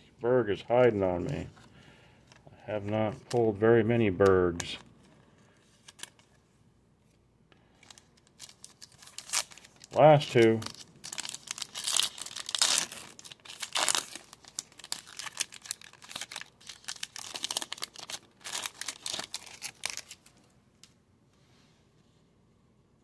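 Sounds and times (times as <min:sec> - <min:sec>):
wrapper tearing and crinkling: 0:05.8 - 0:06.3, 0:07.8 - 0:20.4.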